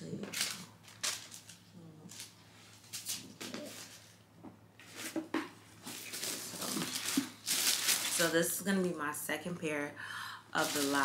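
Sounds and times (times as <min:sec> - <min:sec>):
packaging rustling and crinkling: 0:00.2 - 0:04.2, 0:05.8 - 0:08.4, 0:10.6 - 0:11.0.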